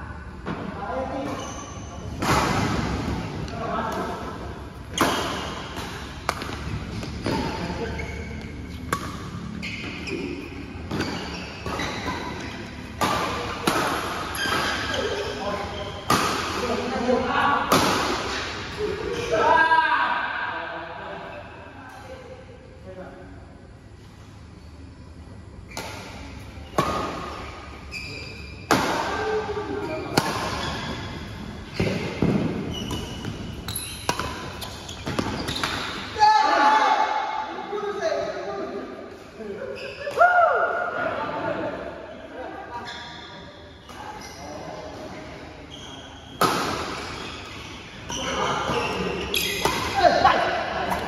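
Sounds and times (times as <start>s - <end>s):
badminton rackets hitting shuttlecock: 4.9s - 7.6s, 10.8s - 15.2s, 15.9s - 16.8s, 17.7s - 18.7s, 28.6s - 36.1s, 49.3s - 50.2s.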